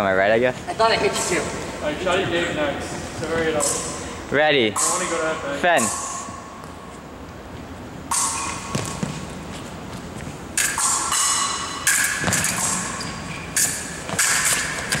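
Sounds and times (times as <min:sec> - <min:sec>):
footwork thuds on floor: 0:08.7 - 0:09.3.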